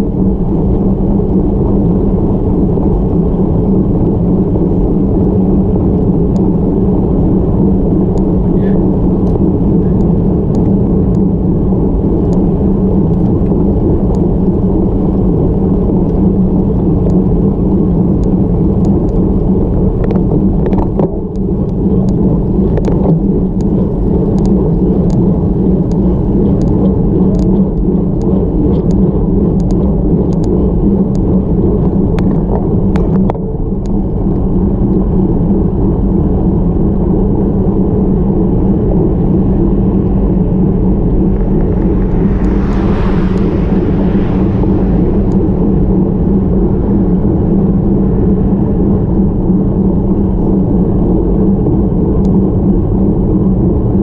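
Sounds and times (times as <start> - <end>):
road noise: 0.0 - 32.9, 38.2 - 50.4
wind rumble: 0.0 - 54.0
light ticks: 14.1 - 14.3, 18.2 - 19.2, 20.0 - 25.2, 25.8 - 29.0, 29.6 - 31.3.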